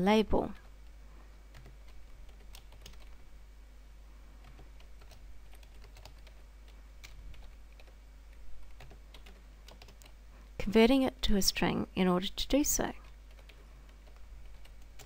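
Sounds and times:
faint keyboard typing: 0.6s - 3.2s, 4.4s - 10.2s, 12.9s - 15.0s.

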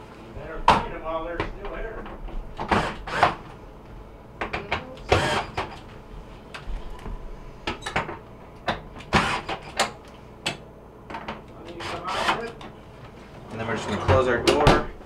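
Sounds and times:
screwdriver tightening screws: 11.8s - 12.6s.

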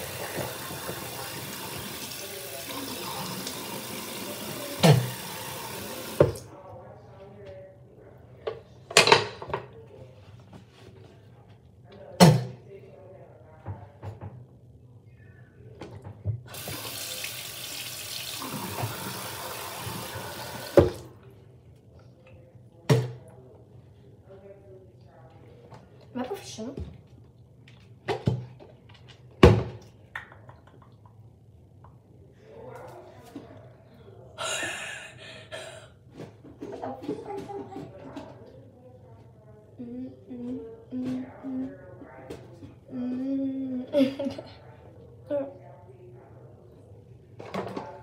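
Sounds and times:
faucet running: 0.0s - 6.4s, 16.5s - 21.1s.

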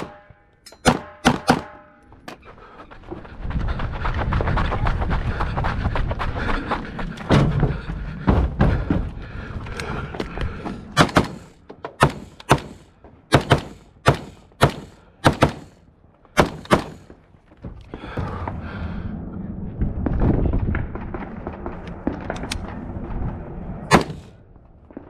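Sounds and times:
gunshots hitting steel targets: 0.0s - 2.0s, 11.0s - 15.8s, 16.4s - 17.1s, 23.9s - 24.4s
heavy thumps: 7.2s - 15.8s.

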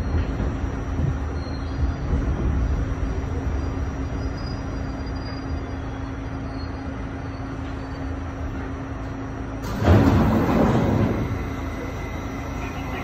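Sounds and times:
steady hum: 0.0s - 13.0s
subway car rumbling: 0.0s - 13.0s.

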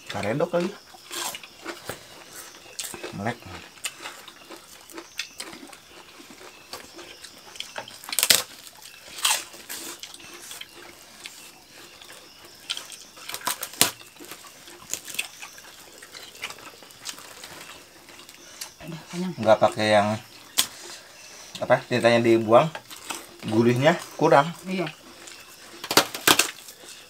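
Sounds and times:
wet chewing and lip-smacking: 0.9s - 18.8s.

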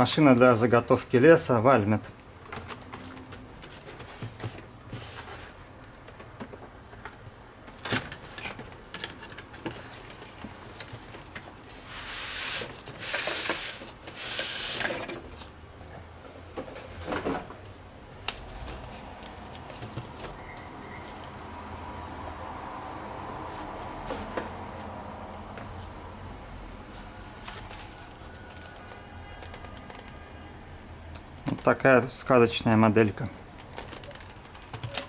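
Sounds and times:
cardboard and foam rustling: 2.5s - 7.2s.

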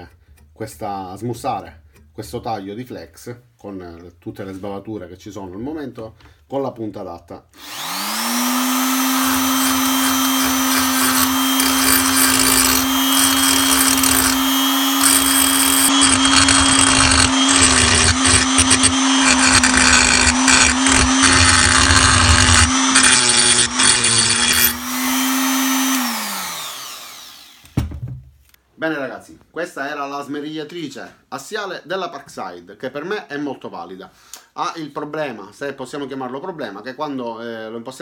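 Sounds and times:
stone grinding metal: 7.6s - 26.6s
die grinder whining: 7.6s - 27.8s.

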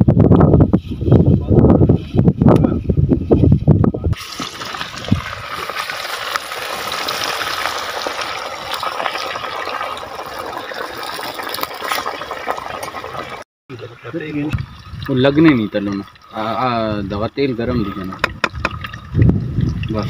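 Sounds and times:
wind rumbling on microphone: 0.0s - 6.0s, 14.3s - 20.0s
frying oil sizzling and bubbling: 4.2s - 17.6s.

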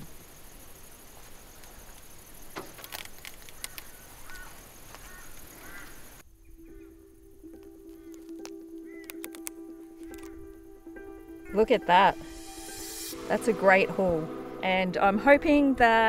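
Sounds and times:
outdoor background noise: 0.0s - 16.0s
sharp clicks: 2.5s - 5.5s, 7.5s - 10.6s
bird chirps: 3.5s - 12.9s
background music low note: 6.3s - 16.0s.

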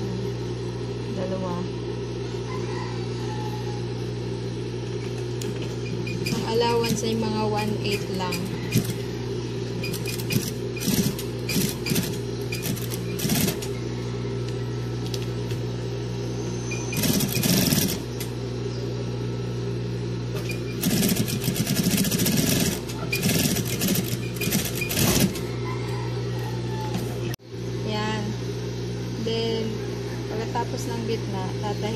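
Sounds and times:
sewing machine stitching: 7.9s - 9.0s, 9.8s - 13.7s, 16.7s - 18.3s, 20.4s - 25.5s.

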